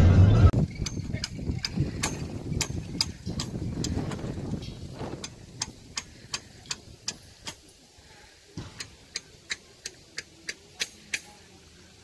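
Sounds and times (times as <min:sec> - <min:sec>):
sharp high ticking clicks: 0:00.7 - 0:07.6.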